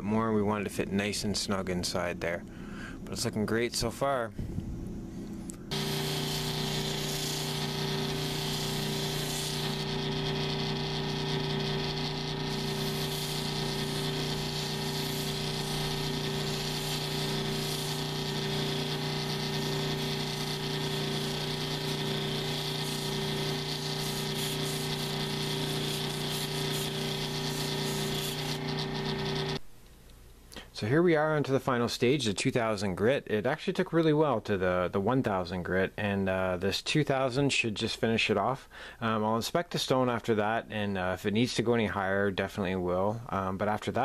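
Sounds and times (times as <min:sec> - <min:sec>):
machine motor hum: 0:05.7 - 0:29.6
stone grinding on sanding disc: 0:05.7 - 0:29.6.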